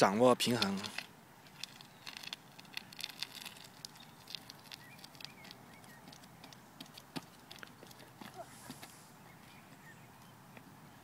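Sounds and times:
unicycle tyre tapping: 0.6s - 8.9s.

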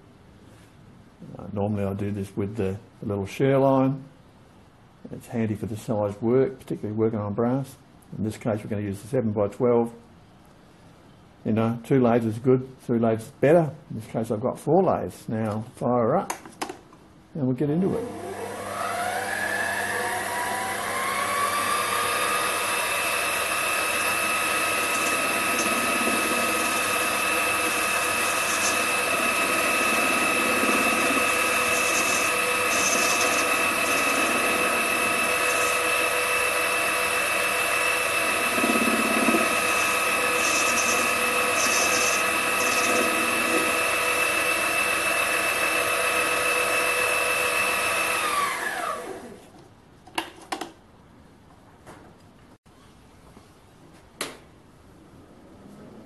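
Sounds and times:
lathe motor whining: 18.0s - 49.4s
lathe tool scraping metal: 21.6s - 46.4s.

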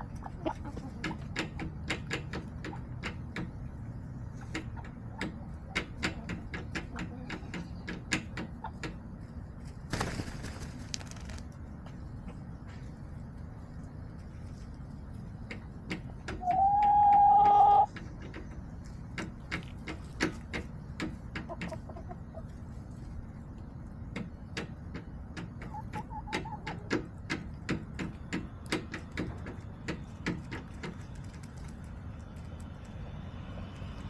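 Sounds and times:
chicken calling: 16.3s - 17.9s.

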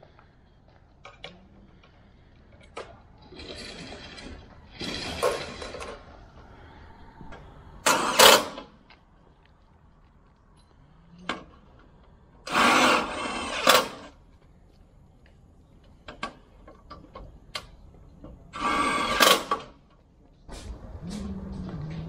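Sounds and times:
steady low hum: 20.0s - 22.0s.

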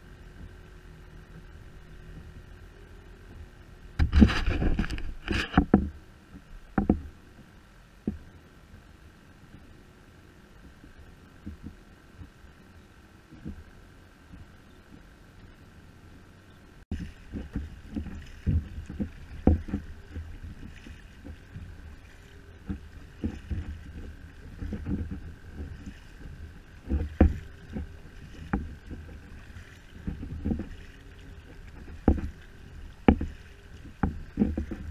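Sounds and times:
paddle knocking on plastic kayak: 16.9s - 34.9s
paddle splashing in water: 16.9s - 34.9s.

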